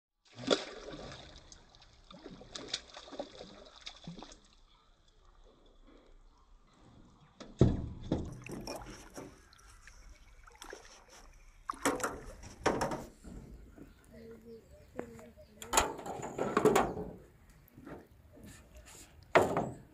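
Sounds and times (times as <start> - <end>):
fish splashing in water: 0.3 - 4.6.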